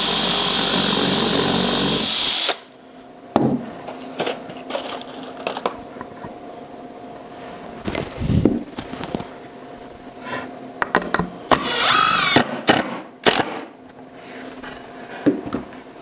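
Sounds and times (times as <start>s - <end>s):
cordless drill drilling wood: 0.0s - 2.6s, 11.5s - 12.4s.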